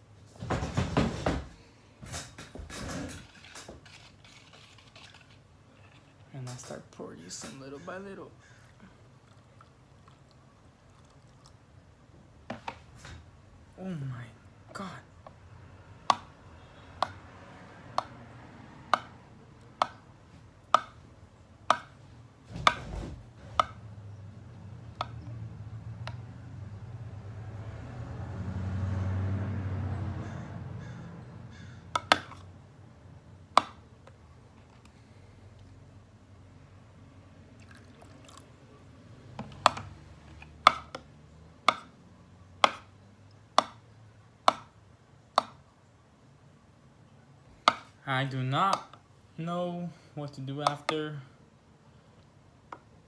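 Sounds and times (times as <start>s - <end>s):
spoon stirring thick slime: 3.2s - 6.3s.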